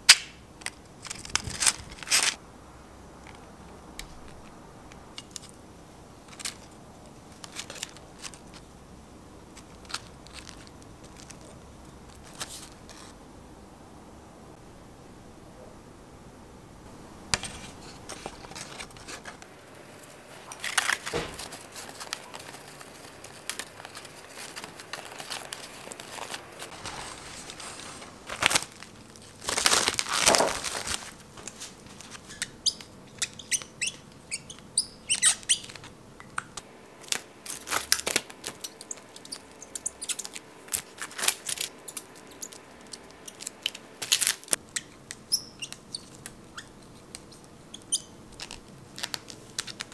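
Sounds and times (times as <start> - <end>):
cling film crinkling: 0.1 - 2.4, 6.2 - 8.8, 9.4 - 13.2, 17.3 - 34.6, 36.5 - 49.9
marker squeaking on plastic wrap: 20.4 - 26.8, 29.5 - 35.9, 37.5 - 49.9.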